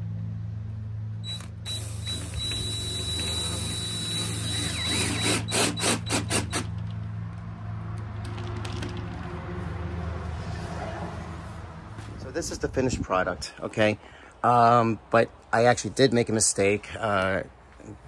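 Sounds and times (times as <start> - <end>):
cordless drill driving a screw: 1.2 - 6.8.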